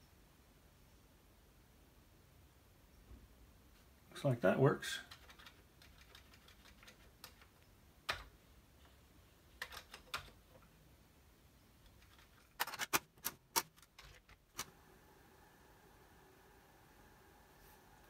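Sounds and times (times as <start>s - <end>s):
keyboard keys clicking: 5.1s - 8.3s, 9.6s - 10.4s.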